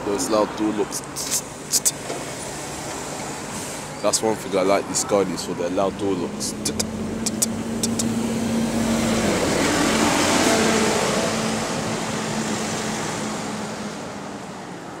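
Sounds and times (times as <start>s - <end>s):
bus engine pulling away: 0.0s - 15.0s
traffic passing: 0.0s - 15.0s.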